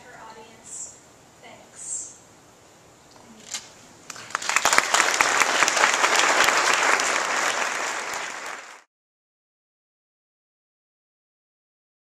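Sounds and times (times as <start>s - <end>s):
audience applauding: 4.1s - 8.9s.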